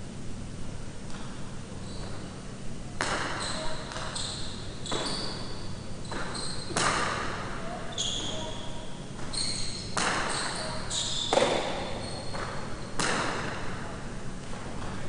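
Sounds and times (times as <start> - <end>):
short high squeaks: 3.2 - 13.0
ball cracking against wall: 6.1 - 7.4, 11.3 - 13.6.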